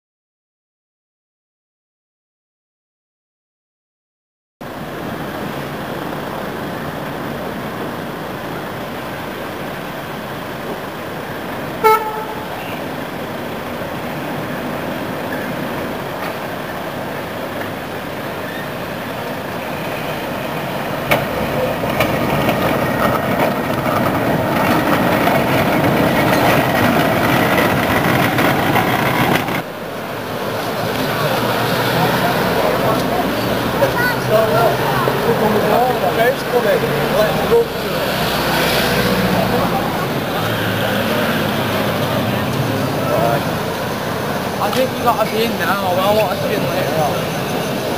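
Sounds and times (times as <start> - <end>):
street traffic noise: 4.6 - 47.9
tram running on rails: 4.6 - 47.9
car horn toot: 11.8 - 12.8.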